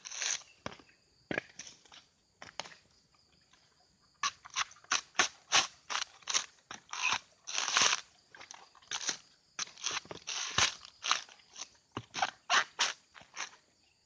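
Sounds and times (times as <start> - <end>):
coconut husk cracking and ripping: 4.2 - 13.5.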